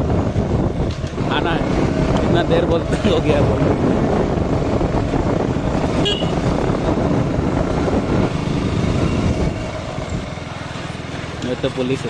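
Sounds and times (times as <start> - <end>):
motorcycle engine running: 0.0 - 12.0
horn toot: 6.0 - 6.5.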